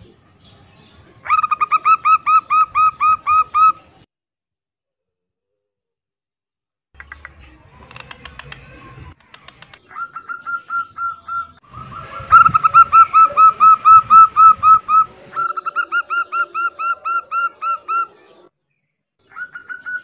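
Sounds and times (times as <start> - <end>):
dove cooing: 9.8 - 18.2.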